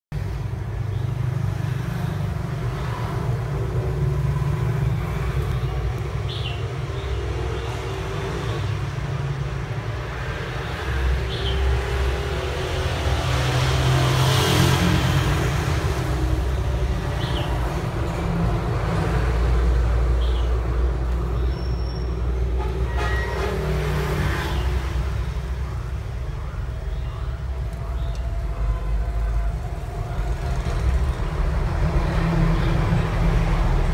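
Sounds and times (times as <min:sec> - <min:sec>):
faint high squeaks: 0:21.5 - 0:23.8.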